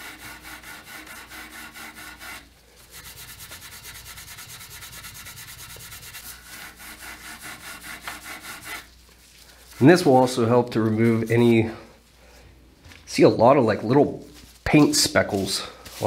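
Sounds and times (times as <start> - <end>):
scrubbing wood with cleaning pad: 0.0 - 9.0.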